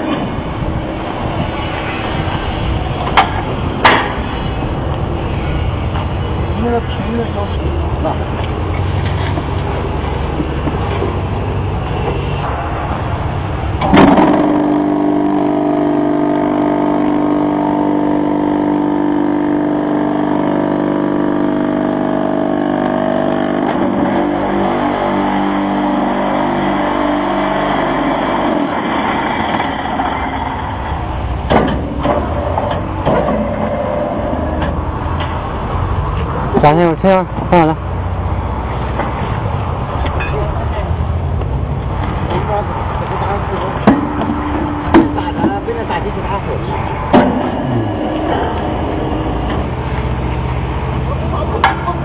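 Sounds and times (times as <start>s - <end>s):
sharp metal knocks: 3.0s - 4.3s, 13.8s - 14.8s, 31.4s - 33.9s, 43.8s - 45.6s, 47.1s - 48.5s
vibration motor humming and rattling: 13.9s - 30.9s.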